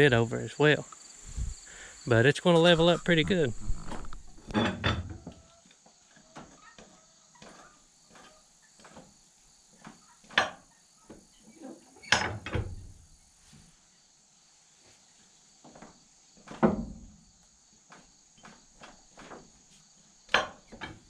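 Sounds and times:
insects droning: 0:00.0 - 0:21.0.

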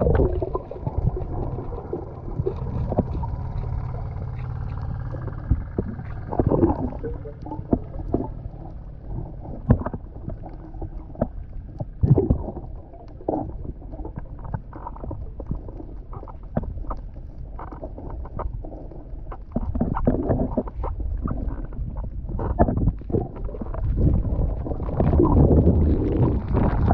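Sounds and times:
underwater swishing bursts: 0:00.0 - 0:11.1, 0:17.6 - 0:26.9
low rumble of water: 0:00.0 - 0:26.9
underwater knocks and scrapes: 0:00.0 - 0:26.9.

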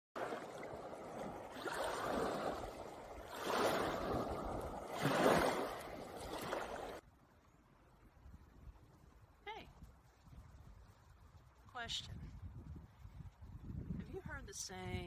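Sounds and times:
waves washing over pebbles: 0:00.2 - 0:07.0.

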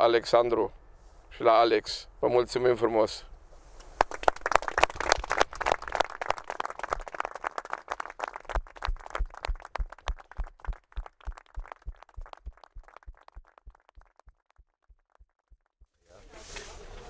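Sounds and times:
group clapping: 0:04.0 - 0:15.6.

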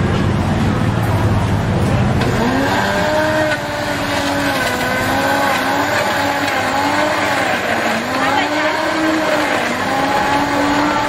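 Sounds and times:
electric blender running: 0:02.2 - 0:11.0.

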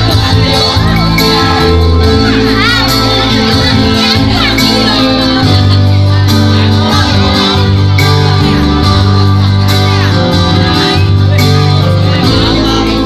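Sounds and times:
electronic keyboard music: 0:00.0 - 0:13.0
heavy steady bass: 0:00.0 - 0:13.0.

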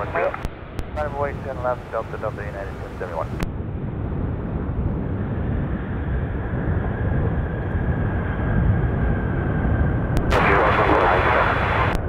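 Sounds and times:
jet engine rumble and whine: 0:00.0 - 0:12.0.

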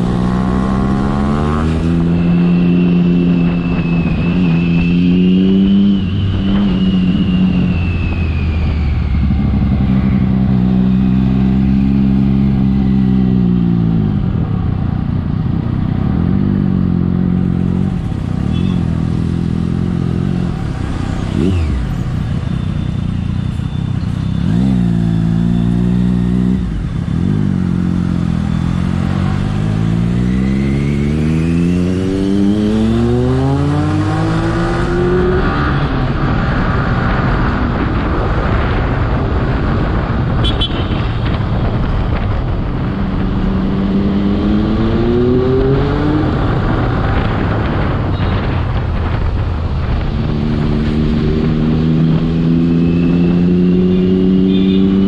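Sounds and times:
motorcycle engine revving: 0:00.0 - 0:07.9, 0:09.1 - 0:55.0
high whistle: 0:02.0 - 0:09.5.

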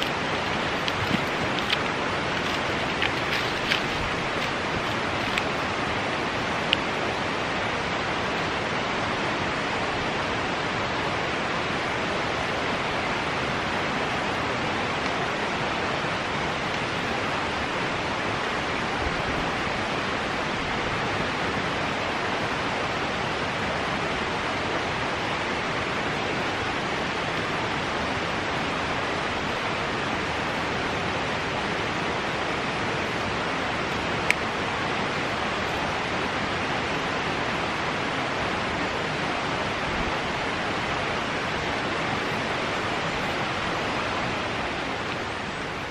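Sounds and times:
steady rushing noise: 0:00.0 - 0:19.2.

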